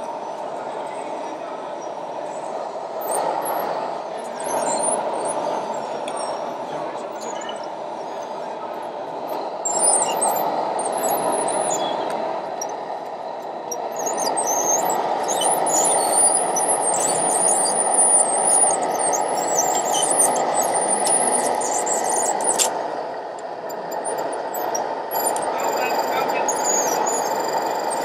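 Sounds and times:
background hubbub: 0:00.0 - 0:28.0
high-pitched track squeals: 0:09.6 - 0:12.8, 0:13.8 - 0:22.7, 0:23.9 - 0:28.0
model dozer grinding: 0:13.9 - 0:22.8.

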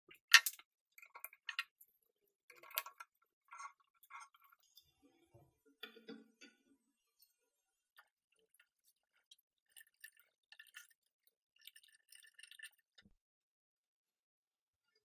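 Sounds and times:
small metal and plastic parts clicking: 0:00.1 - 0:01.9, 0:02.5 - 0:04.4.

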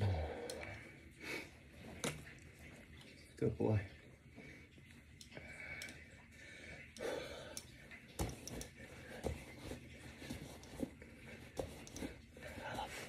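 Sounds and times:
man breathing heavily: 0:00.0 - 0:01.7, 0:04.6 - 0:08.0, 0:10.2 - 0:13.0.

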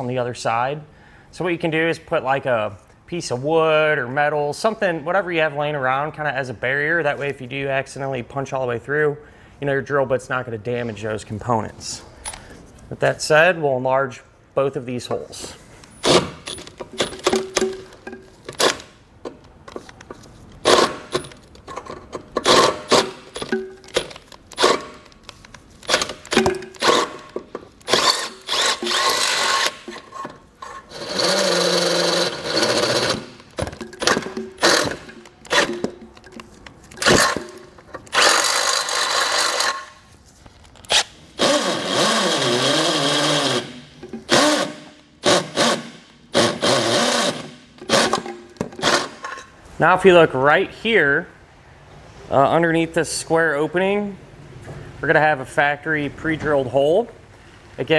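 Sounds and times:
cordless drill boring through steel: 0:26.8 - 0:27.2, 0:27.9 - 0:30.0, 0:30.9 - 0:33.3, 0:34.0 - 0:35.8, 0:38.1 - 0:39.8, 0:41.4 - 0:43.7, 0:44.3 - 0:49.2.

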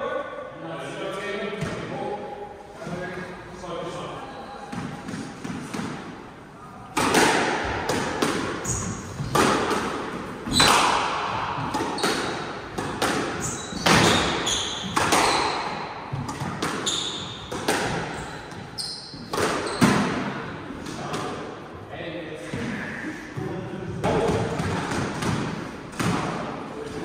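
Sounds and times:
squash ball hits echoing: 0:04.7 - 0:06.2, 0:06.8 - 0:21.4, 0:24.0 - 0:26.6
shoes squeaking on wooden floor: 0:08.6 - 0:09.4, 0:13.4 - 0:15.6, 0:16.8 - 0:17.5, 0:18.1 - 0:20.0.

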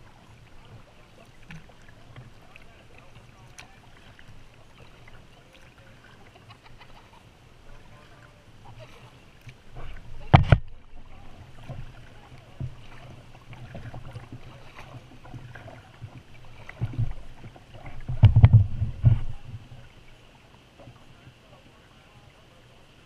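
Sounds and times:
splashes: 0:00.0 - 0:22.4
water slapping hull: 0:00.0 - 0:22.7
paddle strokes: 0:00.0 - 0:23.0
knocks on kayak: 0:10.2 - 0:10.8, 0:18.0 - 0:19.4.

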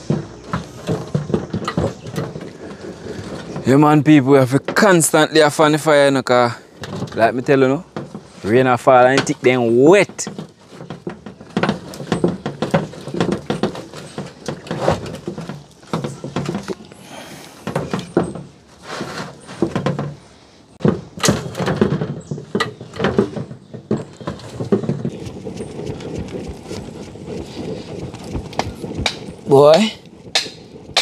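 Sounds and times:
fan flapping whooshes: 0:24.4 - 0:31.0.

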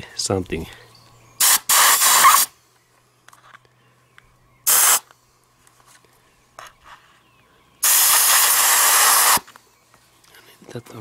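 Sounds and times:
compressed air hissing from blow gun: 0:01.4 - 0:02.5, 0:04.6 - 0:05.1, 0:07.8 - 0:09.5.

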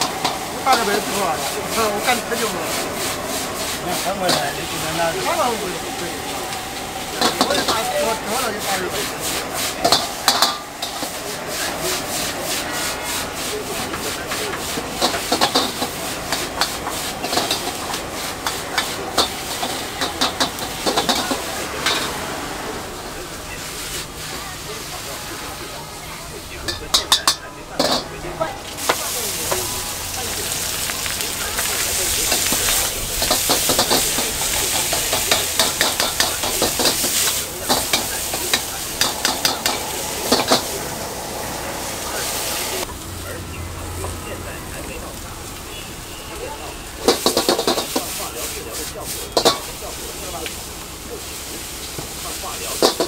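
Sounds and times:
gas flame hiss: 0:00.0 - 0:25.0, 0:28.7 - 0:43.0
food sizzling: 0:00.0 - 0:53.0
metal ladle clanking on wok: 0:09.8 - 0:11.2, 0:26.6 - 0:29.6, 0:32.3 - 0:41.8, 0:49.3 - 0:49.7, 0:52.7 - 0:53.0.

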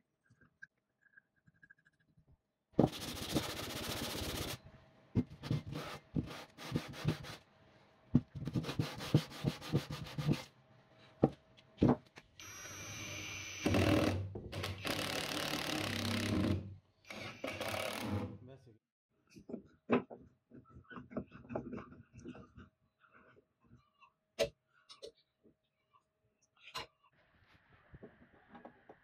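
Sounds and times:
steel block rubbed on sandpaper: 0:02.9 - 0:04.6
electric drill drilling steel: 0:12.4 - 0:18.1.

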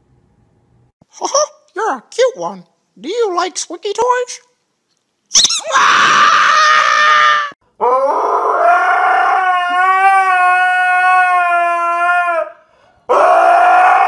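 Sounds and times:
husky howling: 0:05.7 - 0:14.0.

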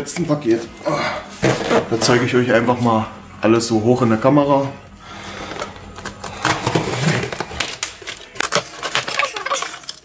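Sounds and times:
cardboard packaging rustling: 0:01.4 - 0:02.2, 0:05.3 - 0:10.0.

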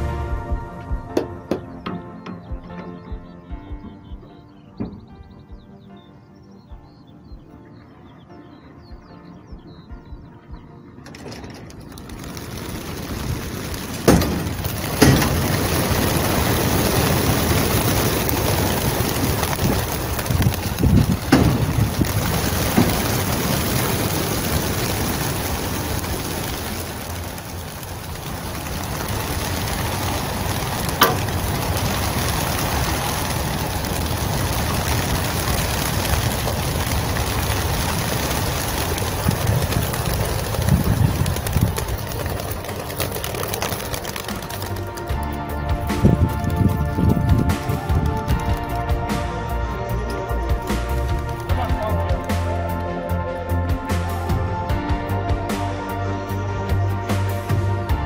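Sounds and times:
pigeon wingbeats clattering: 0:11.0 - 0:49.2, 0:50.0 - 0:52.8.

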